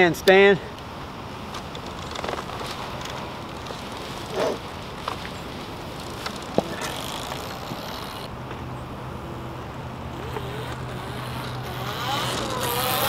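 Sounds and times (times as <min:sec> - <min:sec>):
outdoor noise haze: 0:00.0 - 0:13.0
electric motorcycle motor whine: 0:10.1 - 0:13.0.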